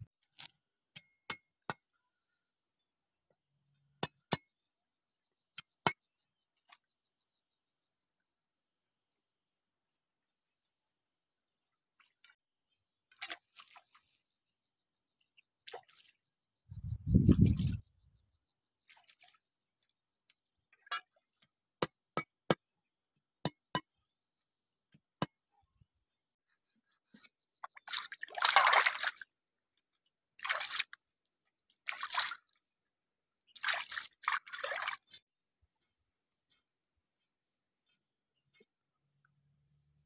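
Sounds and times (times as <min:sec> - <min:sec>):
water splashing and sloshing: 0:13.1 - 0:14.4, 0:15.6 - 0:16.3, 0:16.9 - 0:17.9, 0:18.8 - 0:19.5, 0:27.2 - 0:29.4, 0:30.3 - 0:31.0, 0:31.6 - 0:32.6, 0:33.5 - 0:35.2
water dripping: 0:27.7 - 0:29.2.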